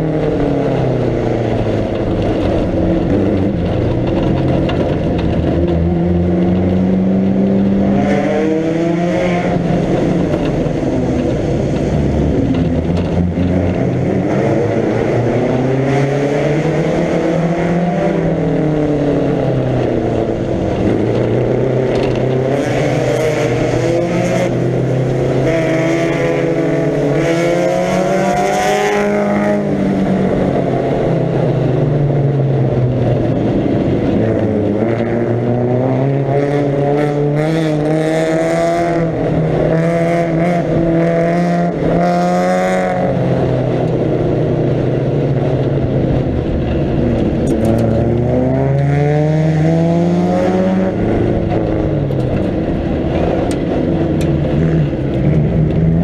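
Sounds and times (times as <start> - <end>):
car engine revving at speed: 0.0 - 56.0.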